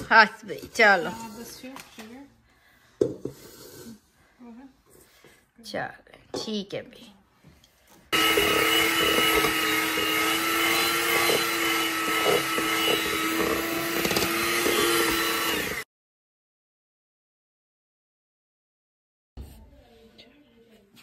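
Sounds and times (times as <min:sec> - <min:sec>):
electric mixer running: 0:08.1 - 0:15.9.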